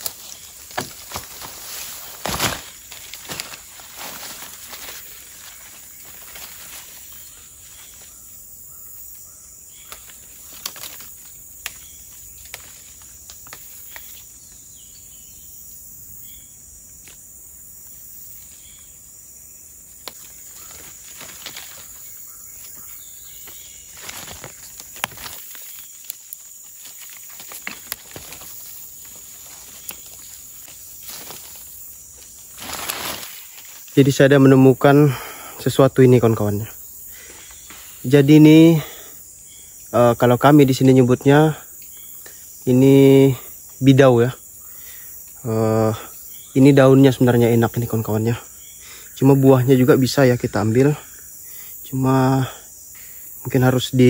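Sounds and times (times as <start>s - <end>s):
twigs snapping: 0.0s - 8.2s, 9.7s - 14.6s, 16.9s - 17.3s, 19.9s - 34.0s
footsteps in undergrowth: 0.0s - 15.4s, 19.8s - 34.9s
high-pitched insect drone: 0.0s - 54.0s.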